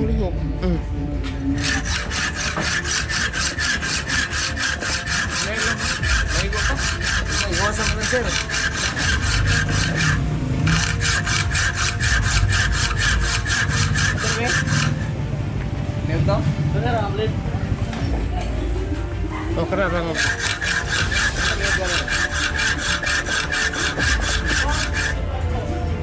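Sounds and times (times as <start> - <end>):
hacksaw cutting metal: 1.5 - 15.2, 19.6 - 25.2.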